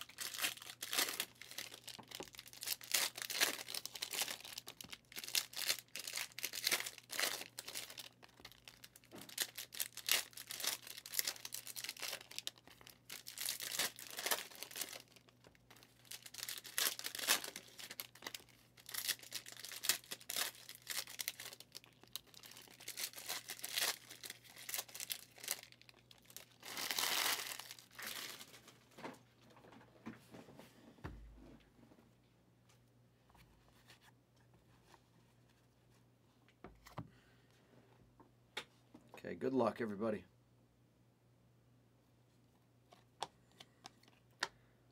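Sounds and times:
wrapper ripping: 0.0 - 28.7
card pack wrappers crinkling: 0.0 - 28.8.

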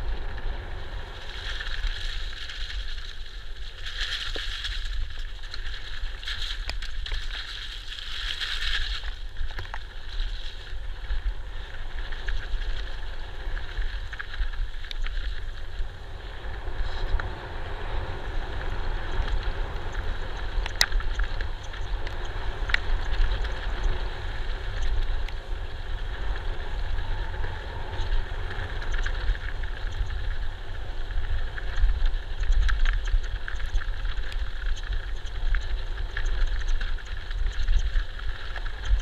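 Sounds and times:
bike hitting roots or rocks: 0.0 - 15.9
bike rattling: 0.0 - 39.0
bike tyres rolling on dirt: 0.0 - 39.0
wind buffeting microphone: 8.7 - 39.0.

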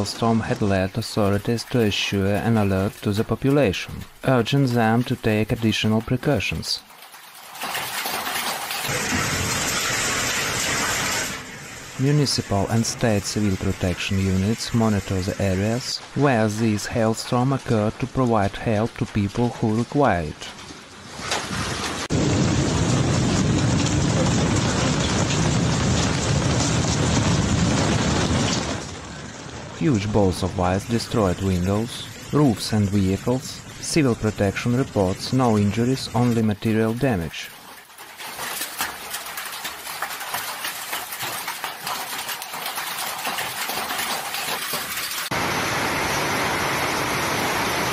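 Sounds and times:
hail and heavy rain pounding: 0.0 - 47.9
storm rushing: 8.2 - 18.4, 20.8 - 36.7.

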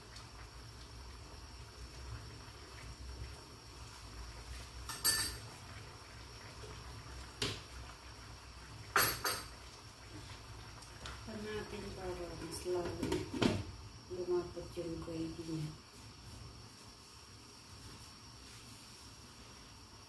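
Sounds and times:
metal and dish clatters: 4.9 - 5.4, 9.0 - 9.5.

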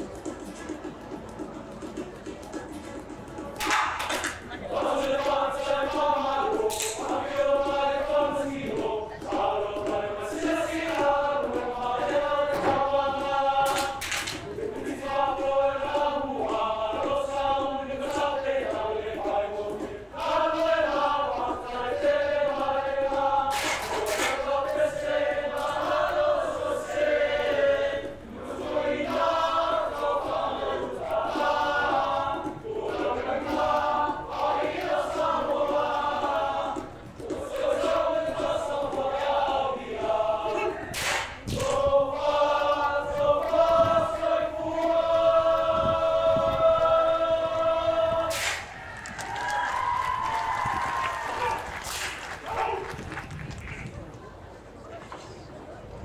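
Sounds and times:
group of men singing: 4.7 - 48.6.

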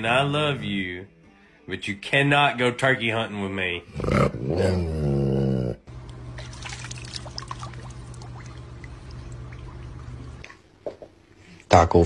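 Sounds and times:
steady low hum: 5.7 - 11.7
pool water trickling and lapping: 6.1 - 10.8.

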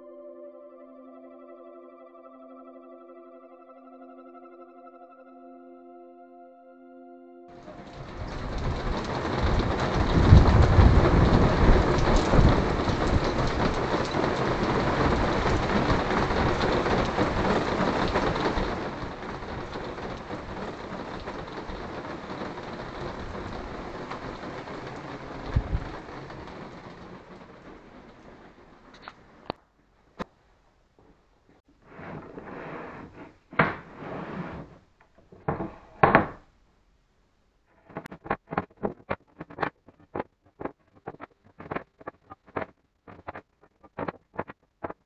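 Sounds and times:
low rumble of thunder: 7.6 - 29.5
heavy rain: 7.6 - 29.6.

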